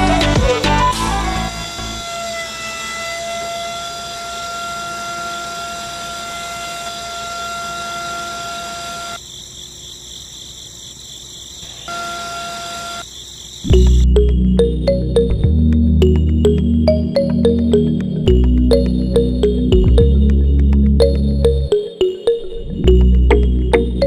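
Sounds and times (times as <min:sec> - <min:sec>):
small motor whining: 0:00.6 - 0:09.2, 0:11.7 - 0:13.1.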